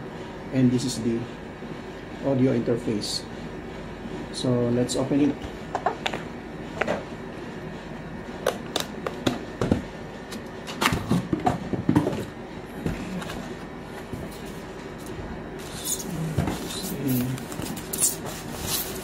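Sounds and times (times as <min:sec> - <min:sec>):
packing material scraping: 0:15.6 - 0:19.0.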